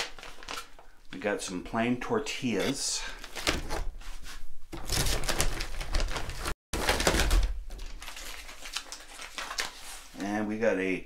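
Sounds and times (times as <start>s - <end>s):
food pouches crinkling: 0.0s - 1.0s, 7.7s - 9.9s.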